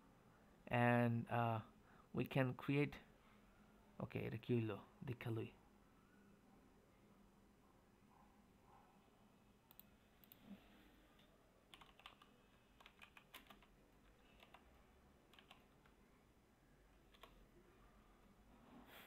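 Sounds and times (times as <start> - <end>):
faint keyboard typing: 9.6 - 16.1, 16.9 - 17.5.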